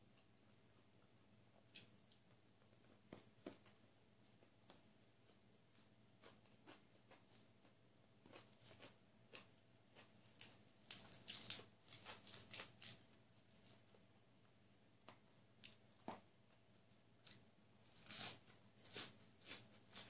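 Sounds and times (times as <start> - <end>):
chewing: 5.2 - 14.0
lettuce leaf tearing crackles: 10.4 - 13.0.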